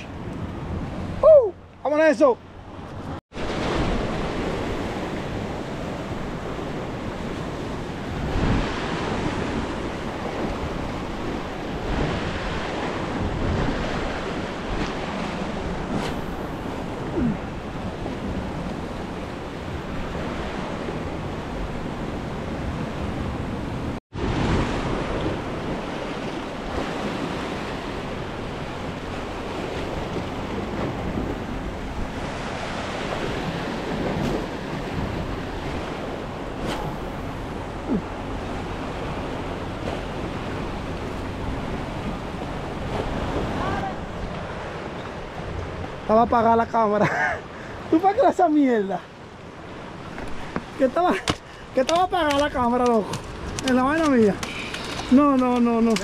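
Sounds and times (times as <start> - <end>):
wind buffeting microphone: 2.5 - 46.3, 49.2 - 56.0
surf breaking on rocks: 49.9 - 56.0.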